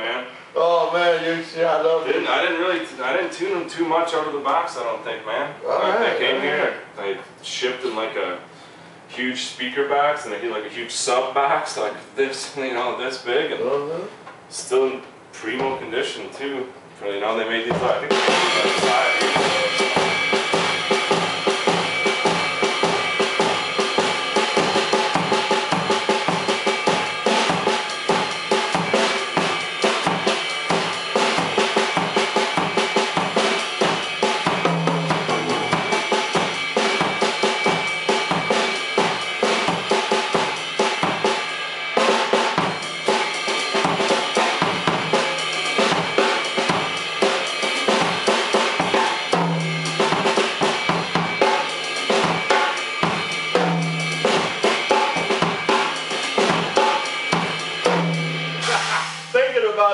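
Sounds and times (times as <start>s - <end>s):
drum kit funk groove: 17.7s - 59.4s.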